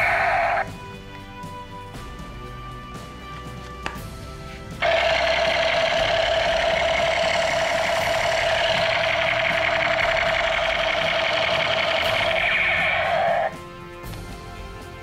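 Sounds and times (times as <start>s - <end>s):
toy machine gun buzzing: 0.0s - 0.7s, 4.8s - 13.6s.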